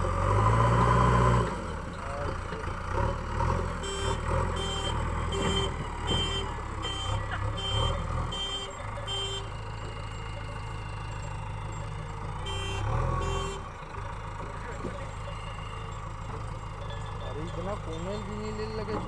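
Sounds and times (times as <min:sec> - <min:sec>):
diesel engine running: 0:00.0 - 0:19.0
reverse alarm beeping: 0:03.8 - 0:13.6, 0:14.5 - 0:19.0.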